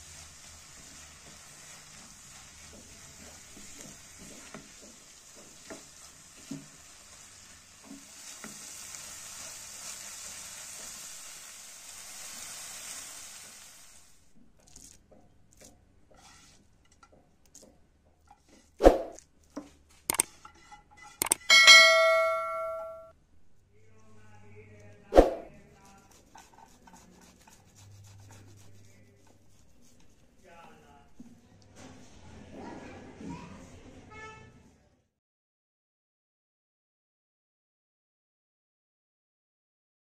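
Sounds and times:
spatula scraping pan: 0:00.0 - 0:13.6, 0:14.6 - 0:22.8, 0:25.3 - 0:32.2
filling sizzling in a frying pan: 0:00.0 - 0:21.2, 0:25.6 - 0:31.3
sharp clicks: 0:21.2 - 0:21.5
bell chime: 0:21.5 - 0:23.1.

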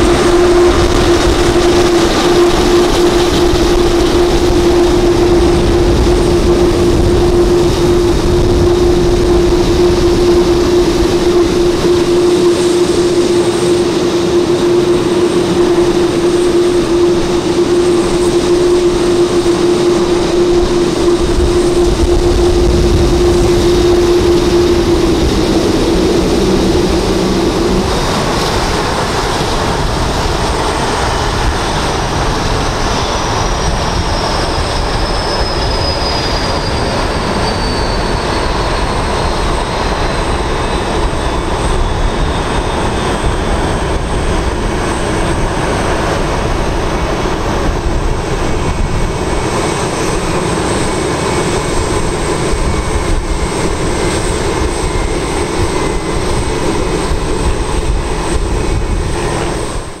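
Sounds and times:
high engine whine: 0:00.0 - 1:00.0
jet engines roaring: 0:00.0 - 1:00.0.

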